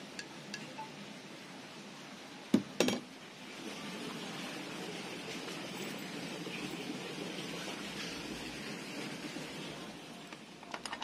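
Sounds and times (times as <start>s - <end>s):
steady low background noise: 0.0s - 11.0s.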